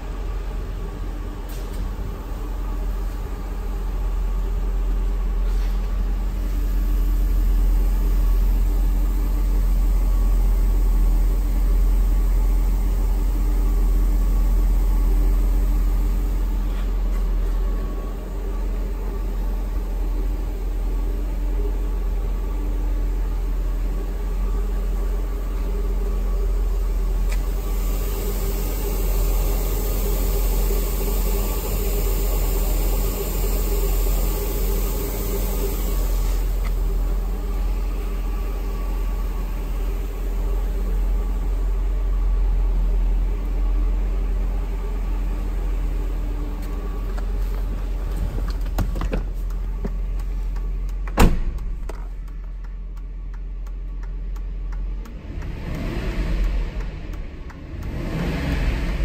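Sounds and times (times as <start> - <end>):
car engine idling: 0.0 - 59.0
car door shutting: 47.6 - 50.0, 51.0 - 52.1.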